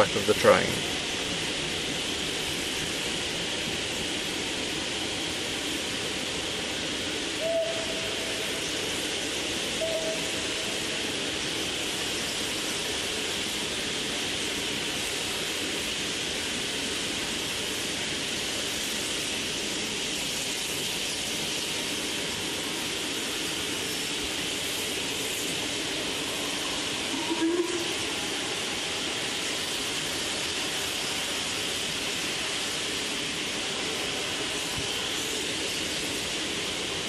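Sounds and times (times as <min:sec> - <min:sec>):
steam hissing: 0:00.0 - 0:37.0
steam whistle: 0:07.4 - 0:08.6, 0:09.8 - 0:10.9, 0:27.0 - 0:28.2.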